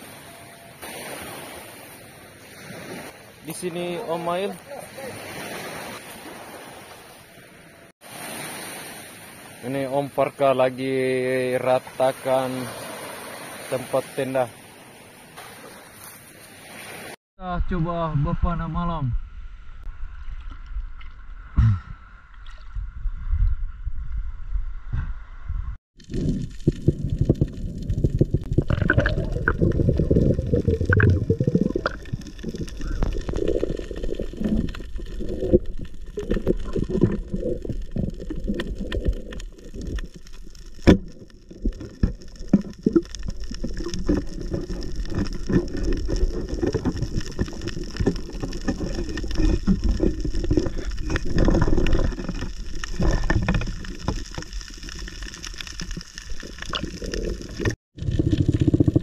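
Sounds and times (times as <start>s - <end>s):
low underwater rumbles: 19.2s - 59.0s
underwater water gurgling: 26.0s - 59.0s.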